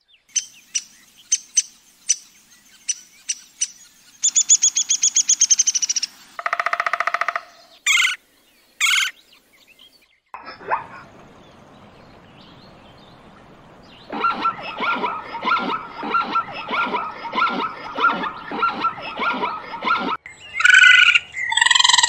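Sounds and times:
woodpecker calling: 0.3 - 8.2, 8.8 - 9.8, 10.4 - 22.0
woodpecker rattling trill: 0.4 - 8.2.

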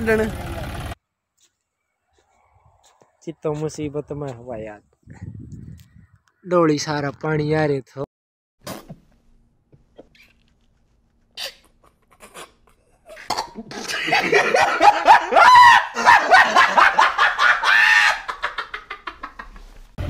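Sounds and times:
man laughing hard: 13.6 - 19.7.

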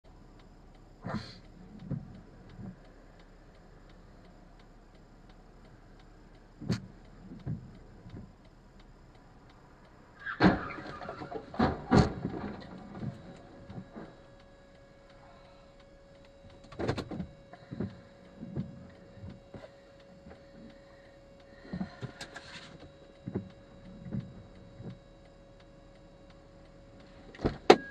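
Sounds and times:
faint steady tone: 0.1 - 27.9
car collision thuds and knocks: 10.2 - 14.1, 27.4 - 27.9.

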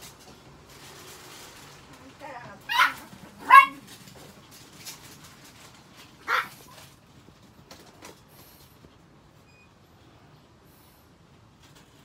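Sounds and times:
small dog barking: 2.7 - 3.9, 6.2 - 6.8.

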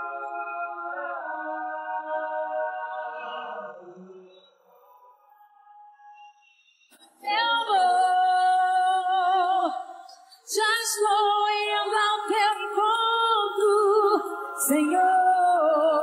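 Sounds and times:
woman singing a cappella: 7.0 - 16.0.

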